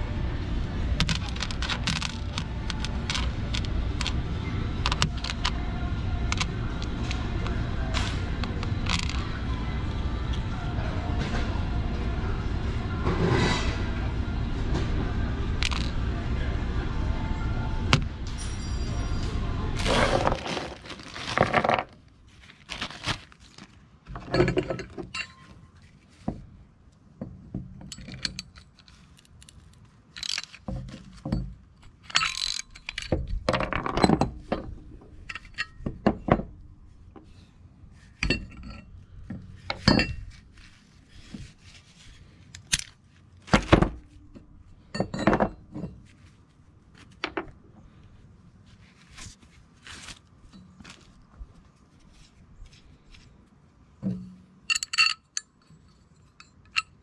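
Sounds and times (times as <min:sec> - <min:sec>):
metal bolts and nuts clinking: 0:01.0 - 0:10.0, 0:15.6 - 0:16.0, 0:17.9 - 0:22.0, 0:24.1 - 0:25.9, 0:27.2 - 0:46.3, 0:54.0 - 0:57.0.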